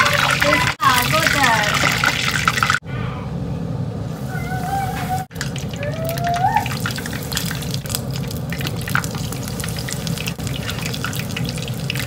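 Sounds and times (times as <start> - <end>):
food deep-frying in oil: 0.0 - 2.8, 5.3 - 12.0
steady low hum: 2.8 - 6.1.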